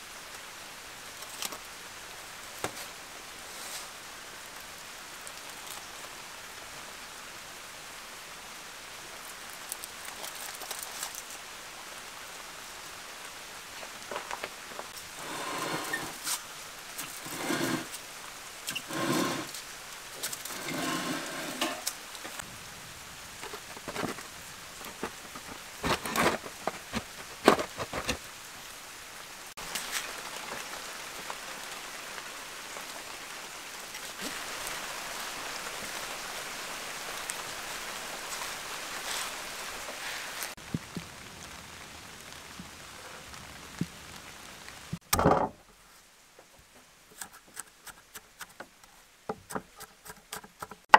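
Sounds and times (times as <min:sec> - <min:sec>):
steady hiss: 0:00.0 - 0:45.0
metal tool scraping in oven: 0:15.2 - 0:16.4, 0:17.2 - 0:17.9, 0:18.7 - 0:19.6, 0:20.4 - 0:21.9.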